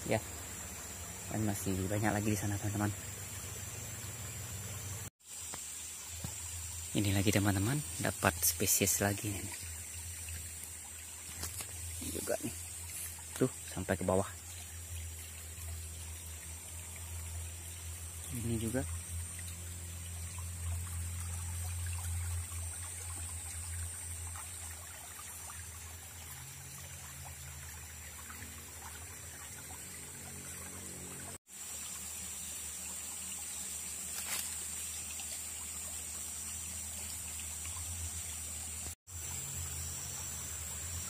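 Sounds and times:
stream trickling: 0.0 - 41.0.

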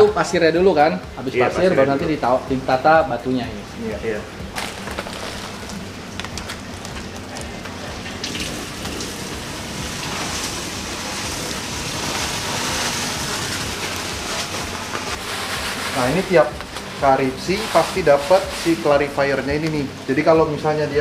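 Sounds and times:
sand pouring into tank: 4.6 - 5.9, 8.2 - 19.8.

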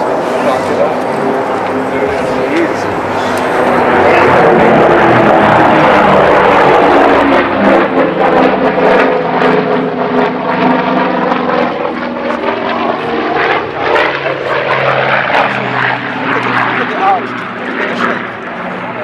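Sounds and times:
propeller plane engines droning: 0.0 - 19.0.

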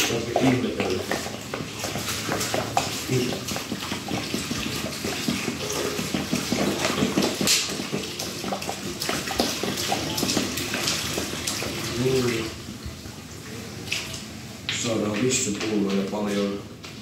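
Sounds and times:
water glugging out of a bottle: 0.0 - 12.6
water splashing into urinal: 0.0 - 15.5.

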